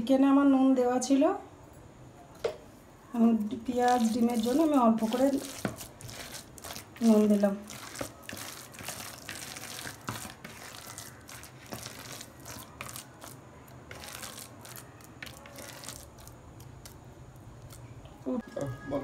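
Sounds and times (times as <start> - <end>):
hand squelching wet mince: 3.7 - 17.0.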